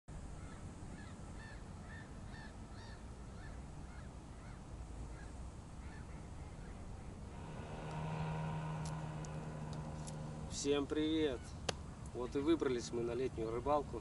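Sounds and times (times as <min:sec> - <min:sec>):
low rumble: 0:07.2 - 0:11.1.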